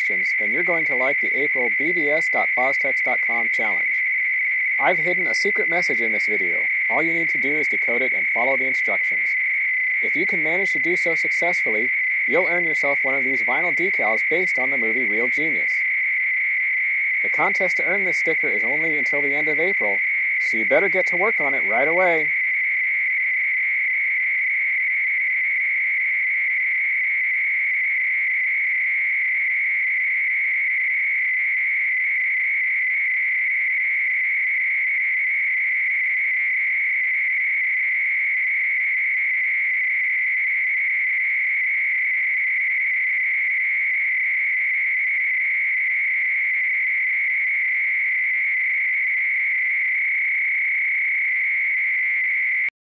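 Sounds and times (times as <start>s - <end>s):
high-pitched electronic tone: 0.0s - 25.0s
faint electronic tones: 0.0s - 52.7s.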